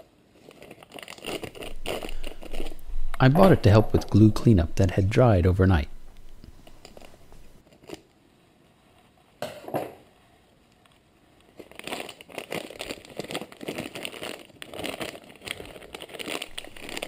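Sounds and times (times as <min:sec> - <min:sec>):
plastic bag crinkling: 0:00.0 - 0:04.8, 0:11.5 - 0:17.0
scissors cutting plastic bag: 0:00.4 - 0:02.8, 0:11.6 - 0:17.0.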